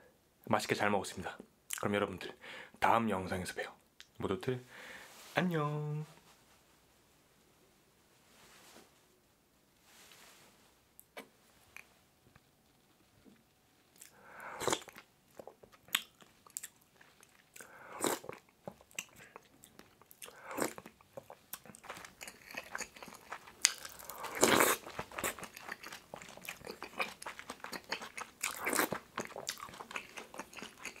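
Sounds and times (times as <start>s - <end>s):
crunchy biting and chewing: 14.0s - 31.0s.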